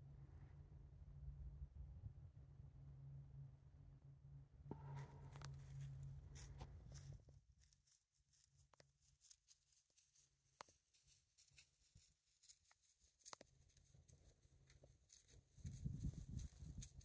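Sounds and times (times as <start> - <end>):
low hum: 0.0 - 7.7.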